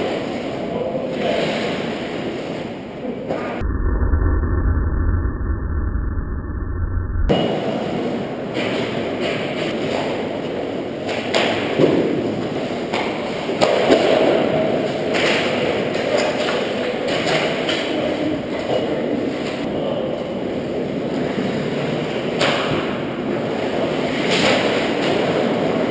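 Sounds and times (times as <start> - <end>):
hockey sticks and puck clacking: 8.5 - 19.7, 22.0 - 25.9.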